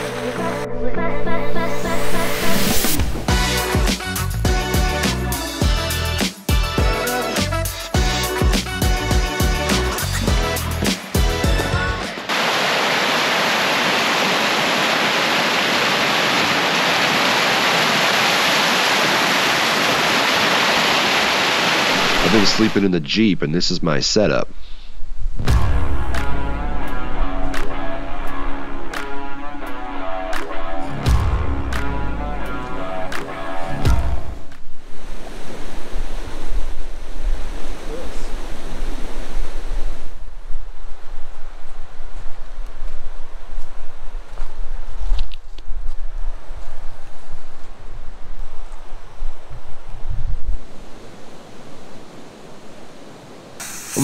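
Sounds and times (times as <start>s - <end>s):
river rushing over rapids: 12.1s - 22.7s
wind rumbling on microphone: 33.8s - 53.6s.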